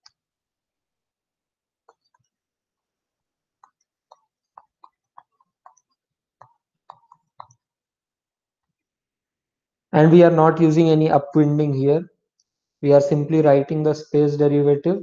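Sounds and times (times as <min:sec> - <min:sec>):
stylus tapping on tablet screen: 0:01.7 - 0:09.0.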